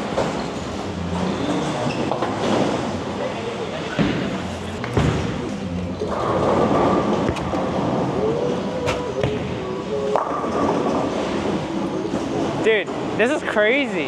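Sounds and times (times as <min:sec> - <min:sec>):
bowling ball rolling on wooden lane: 0:00.0 - 0:13.2
bowling ball knocking pins: 0:03.9 - 0:13.1.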